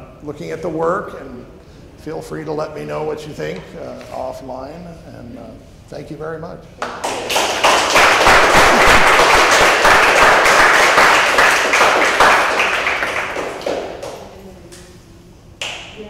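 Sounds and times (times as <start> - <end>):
small group applauding: 6.8 - 14.8.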